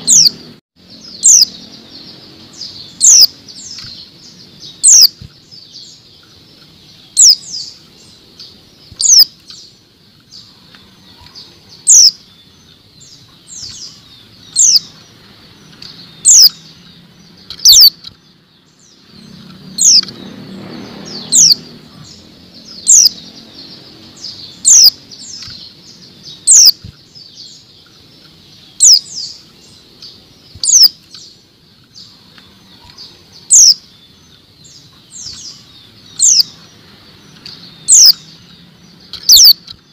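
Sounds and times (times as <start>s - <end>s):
bird giving sharp downward calls: 0.0s - 6.0s, 6.9s - 9.6s, 10.4s - 15.0s, 16.0s - 16.8s, 17.5s - 18.1s, 19.8s - 20.1s, 21.1s - 23.3s, 23.9s - 26.9s, 28.5s - 31.3s, 32.0s - 33.9s, 34.8s - 36.7s, 37.7s - 38.3s, 39.2s - 39.7s.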